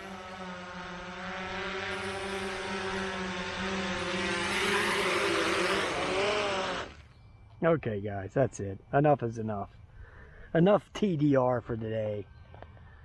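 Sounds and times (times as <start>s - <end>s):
drone propellers whining: 0.0s - 7.3s.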